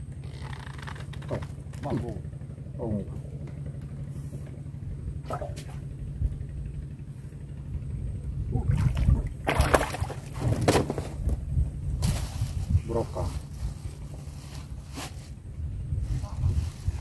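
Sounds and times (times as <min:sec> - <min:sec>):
steady low rumble: 0:00.0 - 0:17.0
fish splashing in water: 0:08.7 - 0:10.4.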